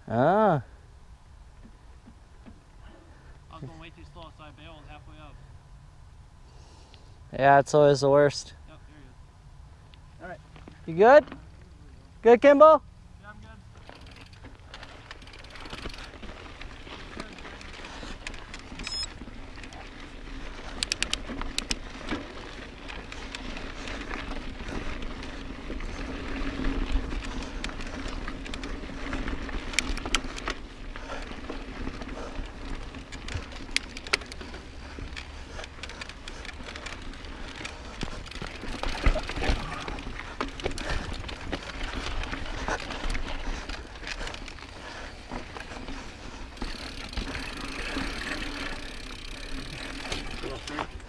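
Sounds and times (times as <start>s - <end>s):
bike clicking and rattling: 1.5s - 4.8s, 13.2s - 51.0s
bike tyres crunching on rock: 13.6s - 51.0s.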